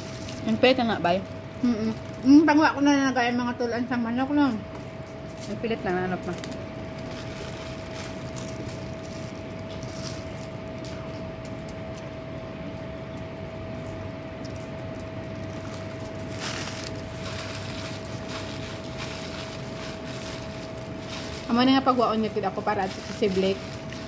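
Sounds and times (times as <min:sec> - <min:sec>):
fingers rustling aluminium foil: 0:00.0 - 0:02.6, 0:05.2 - 0:12.1, 0:14.9 - 0:24.0
steady background hum: 0:00.0 - 0:24.0.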